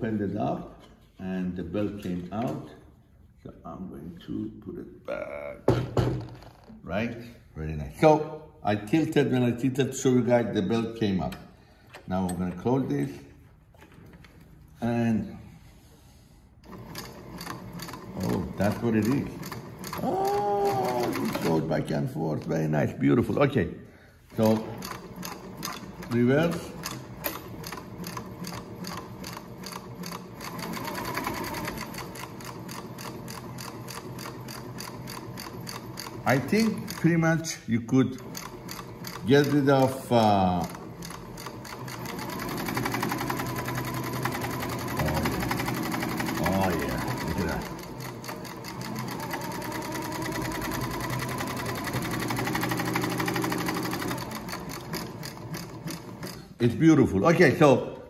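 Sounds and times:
industrial sewing machine stitching: 16.6s - 23.3s, 24.2s - 56.8s.

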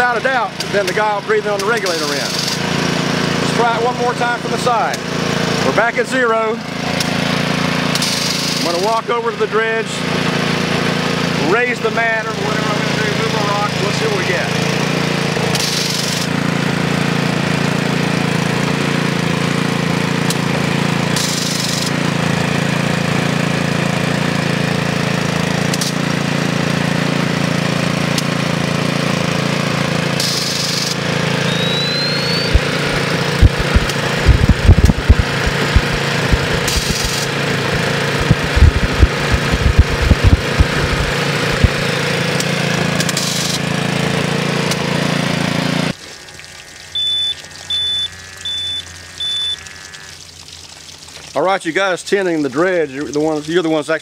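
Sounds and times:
small gasoline engine running: 0.0s - 50.2s
low thumps: 32.5s - 41.8s.

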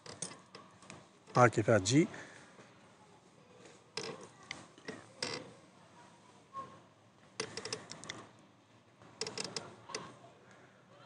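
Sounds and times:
light metallic clicks and rattles: 0.0s - 1.5s, 3.9s - 5.6s, 7.4s - 8.4s, 9.1s - 10.2s.

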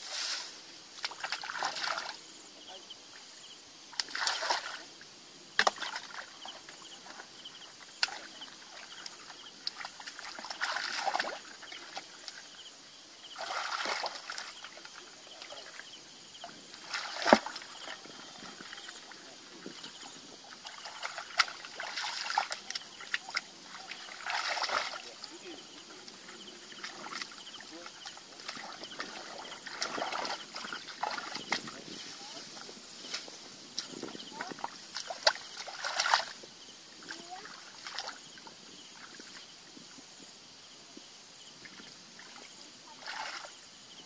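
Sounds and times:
hands splashing in muddy water: 3.9s - 4.8s, 8.0s - 12.4s, 13.4s - 15.7s, 16.4s - 25.4s, 26.0s - 32.0s, 33.8s - 36.4s.

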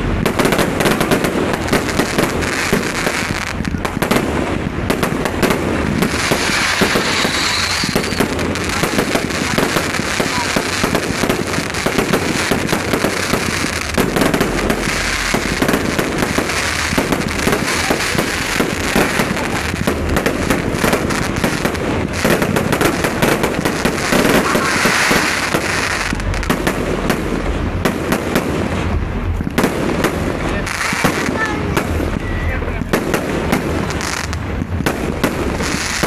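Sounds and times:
fireworks bangs: 0.0s - 36.0s
fireworks crackling: 0.0s - 36.0s.

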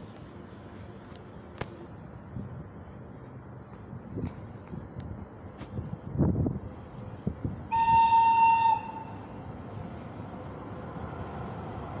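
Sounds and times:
freight train rumble: 0.0s - 12.0s
high-pitched locomotive horn: 7.7s - 9.3s.

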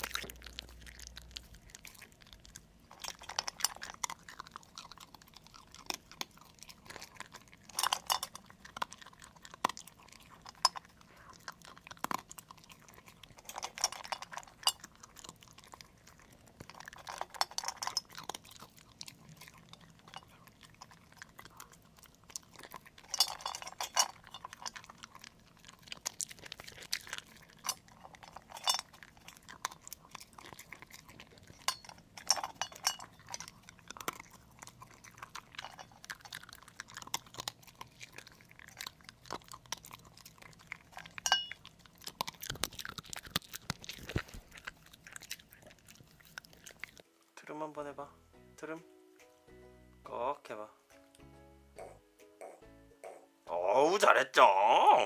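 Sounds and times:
dog crunching food: 0.0s - 47.4s
food clinking against bowl: 7.6s - 8.5s, 16.7s - 18.5s, 23.0s - 25.0s, 31.5s - 33.5s, 41.0s - 41.7s.

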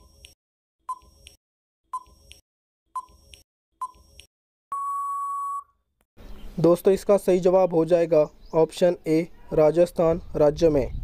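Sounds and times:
long steady beep: 4.7s - 5.8s.

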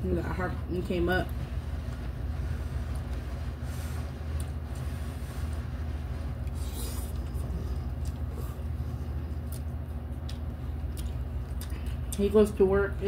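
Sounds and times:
steady low hum: 0.0s - 13.0s
noodles being slurped: 2.5s - 9.8s.

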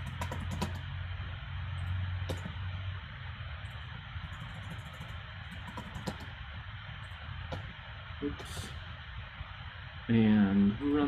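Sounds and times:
keyboard keystrokes: 0.0s - 0.8s, 4.3s - 6.3s
low hum and hiss: 0.0s - 11.0s.

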